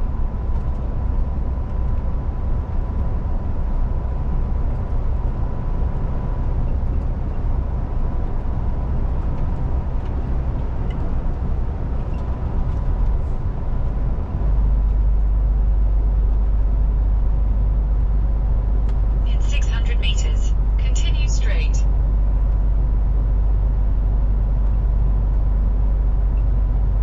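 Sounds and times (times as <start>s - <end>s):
truck engine and road rumble: 0.0s - 27.0s
thin steady whine: 19.2s - 21.9s.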